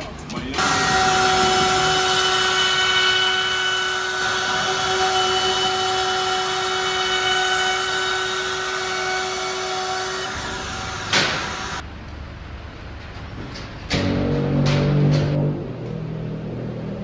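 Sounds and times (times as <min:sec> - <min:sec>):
router bit rasping through wood: 0:00.6 - 0:11.0
wood router whining: 0:00.6 - 0:11.8.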